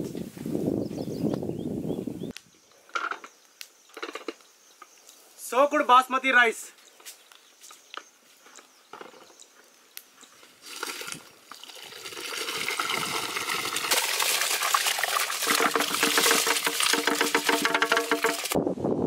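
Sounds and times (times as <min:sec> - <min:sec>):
rice and water pouring into pot: 0:10.6 - 0:18.6.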